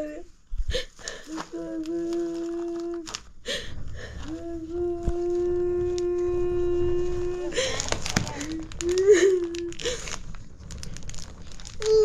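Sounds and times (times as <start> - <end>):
person humming held notes: 1.3 - 3.1, 4.2 - 9.8.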